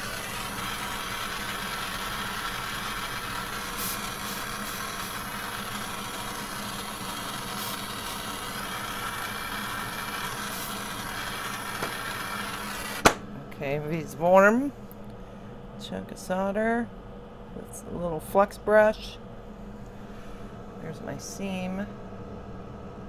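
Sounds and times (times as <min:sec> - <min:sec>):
soldering torch hissing: 0:00.0 - 0:13.2.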